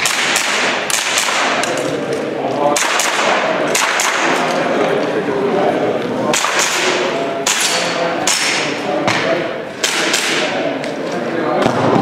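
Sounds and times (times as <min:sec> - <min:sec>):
airsoft pistol shots: 0:00.0 - 0:01.7
steady background din: 0:00.0 - 0:12.0.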